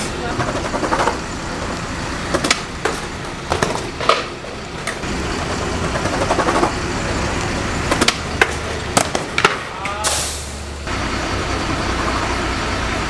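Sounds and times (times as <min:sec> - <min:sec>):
skateboard wheels rolling on pavement: 0:00.0 - 0:13.0
skateboard clacking: 0:00.2 - 0:01.2, 0:02.3 - 0:06.8, 0:07.4 - 0:10.0.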